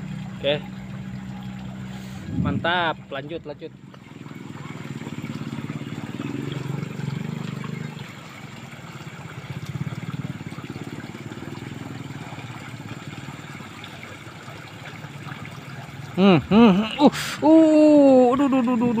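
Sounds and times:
stream water rushing: 0.0 - 19.0
low rumble: 2.0 - 3.5.

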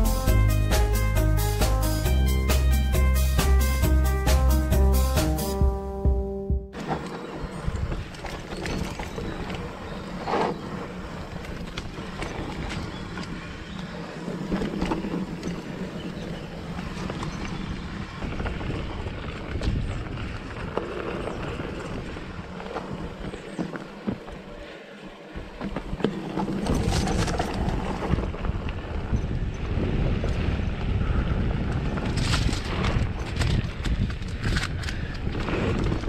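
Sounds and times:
bike tyres on dirt: 6.8 - 36.0
wind buffeting microphone: 7.1 - 24.7, 25.3 - 36.0.

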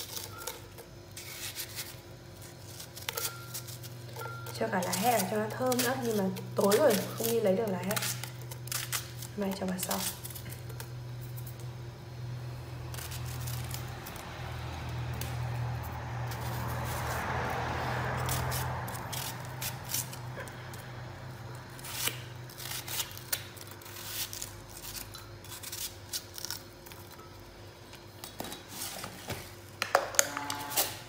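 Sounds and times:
knife cutting onion: 0.0 - 11.2, 15.1 - 21.0, 21.7 - 26.8
steady low hum: 0.0 - 31.0.

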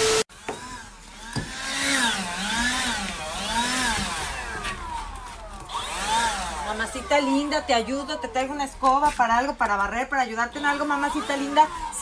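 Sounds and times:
leaf blower engine revving: 0.0 - 8.1, 10.5 - 12.0.

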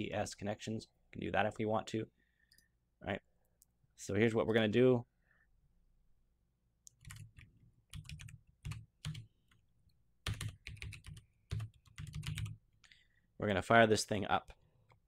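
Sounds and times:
keyboard typing: 6.9 - 9.6, 10.2 - 12.6.

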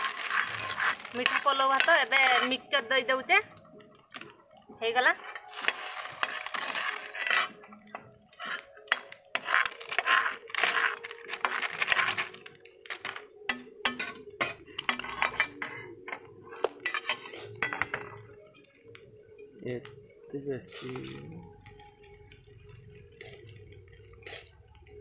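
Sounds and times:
metal ladle scraping metal pan: 0.0 - 2.7, 5.2 - 12.4, 13.0 - 18.3, 20.0 - 25.0
snack packet rustling: 8.4 - 13.5.

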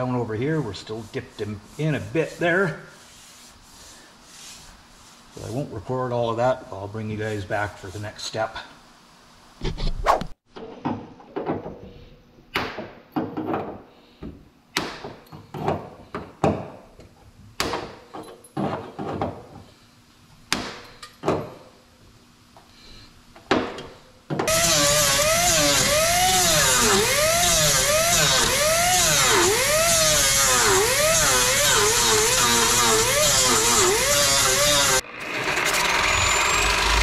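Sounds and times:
air disc grinder whining: 24.5 - 37.0.

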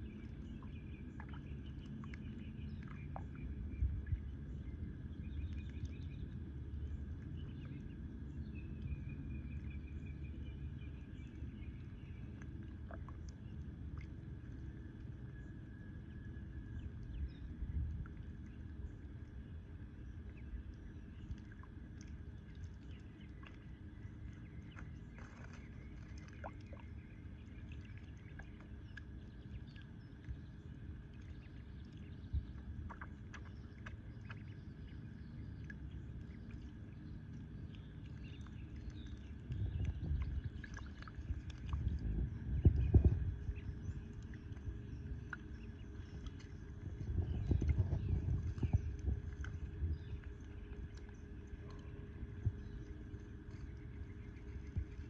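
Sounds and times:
ducklings dabbling in water: 0.0 - 55.0
low outdoor rumble: 0.0 - 55.0.

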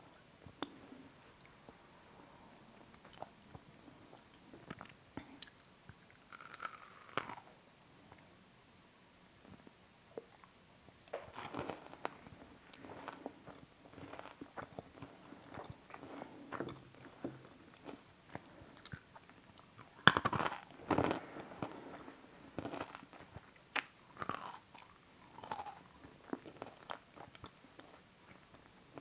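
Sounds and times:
person chewing crunchy sweets: 4.1 - 7.5, 11.1 - 29.0.

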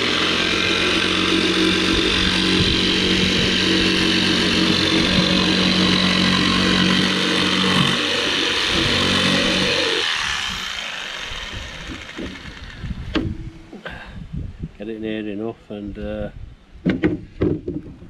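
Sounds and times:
jigsaw cutting wood: 0.0 - 13.3.

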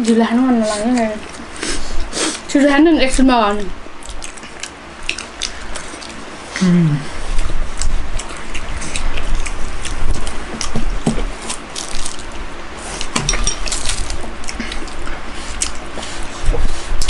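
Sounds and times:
chewing and slurping: 4.0 - 6.5, 7.2 - 17.0.

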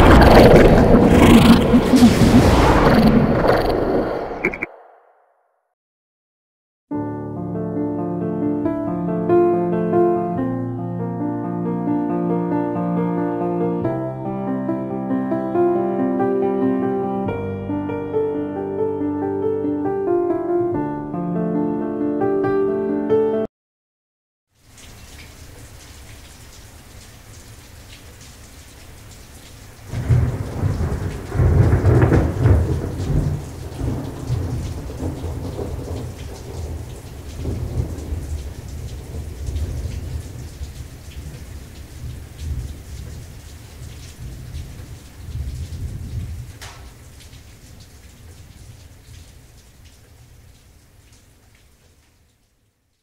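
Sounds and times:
thunder rumbling: 0.0 - 5.1, 29.9 - 47.4
steady rain hiss: 24.6 - 53.0.

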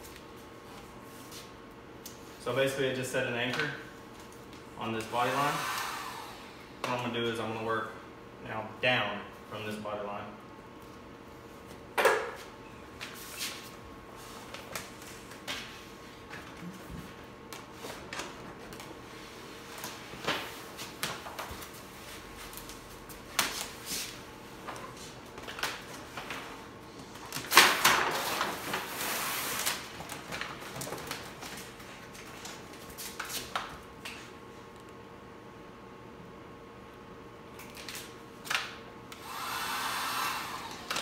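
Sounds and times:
plastic film crinkling and rustling: 27.2 - 33.6.

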